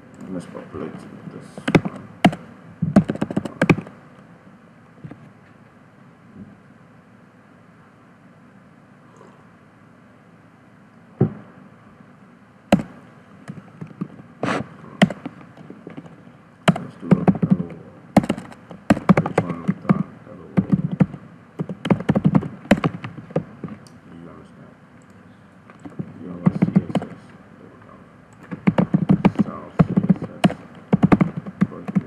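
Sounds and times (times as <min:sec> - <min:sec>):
typing on computer keyboard: 0:01.6 - 0:03.9, 0:15.0 - 0:16.1, 0:16.7 - 0:20.0, 0:20.6 - 0:23.8, 0:25.7 - 0:27.2, 0:28.3 - 0:32.0.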